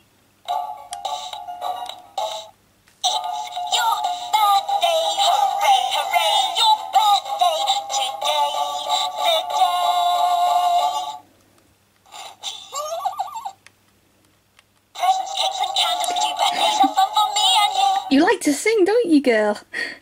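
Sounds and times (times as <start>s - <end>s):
music through toy speaker: 0.5s - 11.2s, 12.1s - 13.6s, 14.9s - 18.1s
toy singing in synthetic voice: 1.0s - 11.2s, 12.1s - 13.6s, 14.9s - 18.2s.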